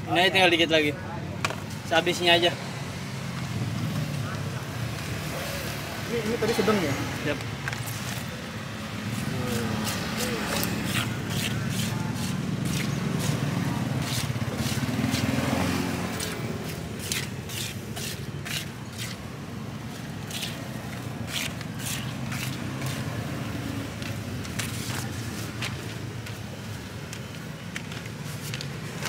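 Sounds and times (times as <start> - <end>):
low rumble of traffic: 0.0 - 29.0
spatula scraping stone mortar: 9.2 - 15.4, 16.2 - 19.2, 20.3 - 23.1.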